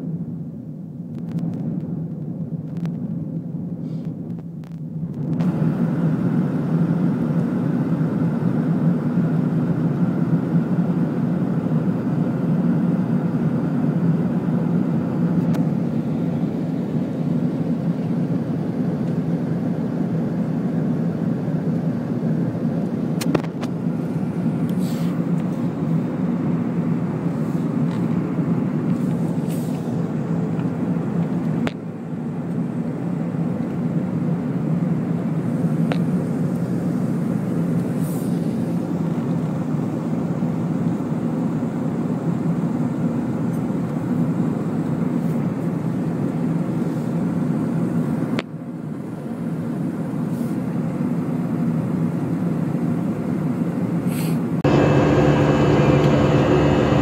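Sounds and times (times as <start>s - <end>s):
airliner cabin drone: 0.0s - 57.0s.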